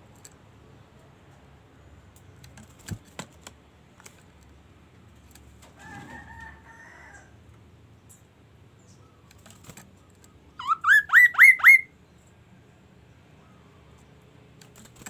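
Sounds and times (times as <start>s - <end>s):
songbird whistling: 10.6s - 11.9s.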